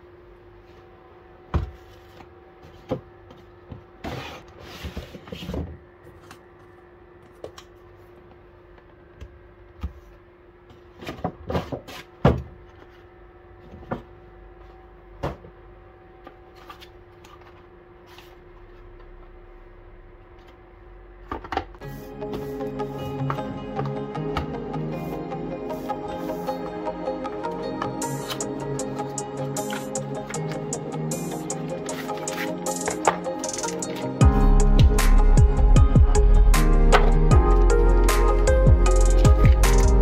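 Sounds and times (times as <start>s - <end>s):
faint steady hum: 12.3s - 21.9s.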